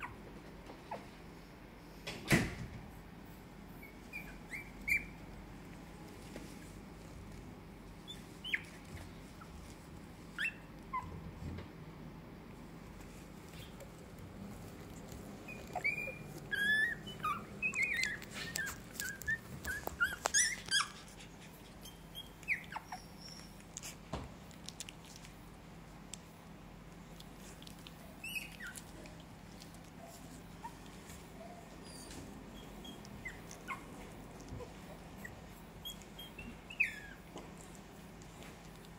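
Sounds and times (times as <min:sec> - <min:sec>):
puppies whimpering: 0:03.7 - 0:05.3, 0:14.8 - 0:23.8, 0:27.7 - 0:38.4.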